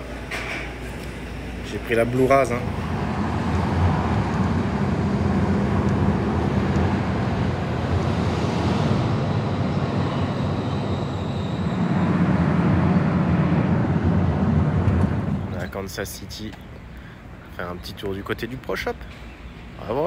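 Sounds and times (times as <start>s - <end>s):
car driving: 2.6s - 15.9s.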